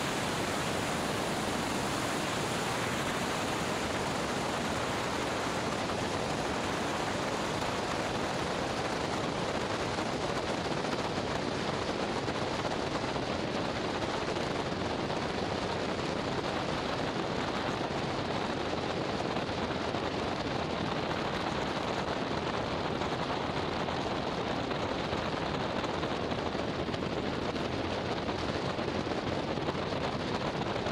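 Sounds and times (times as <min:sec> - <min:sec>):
airplane rolling on runway: 0:00.0 - 0:10.0
wind on microphone: 0:00.0 - 0:30.9.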